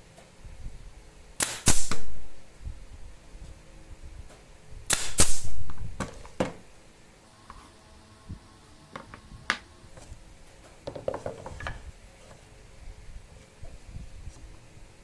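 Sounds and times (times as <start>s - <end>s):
nail gun shots: 1.4s - 2.3s, 4.9s - 6.1s.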